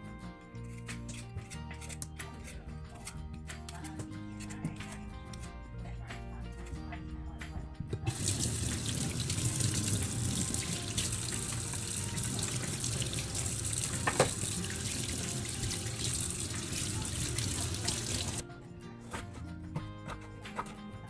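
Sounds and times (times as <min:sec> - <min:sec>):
tap water running into sink: 0:08.1 - 0:18.4.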